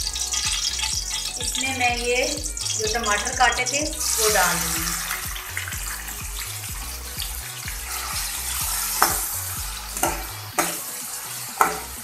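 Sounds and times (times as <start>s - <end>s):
tomatoes sizzling in hot oil: 0.0s - 12.0s
metal spatula scraping a pan: 0.1s - 1.8s, 6.8s - 12.0s.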